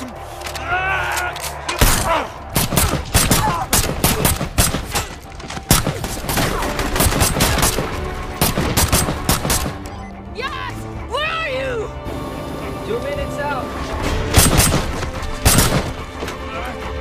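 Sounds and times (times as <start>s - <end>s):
gunshots: 1.8s - 9.9s, 14.3s - 16.2s.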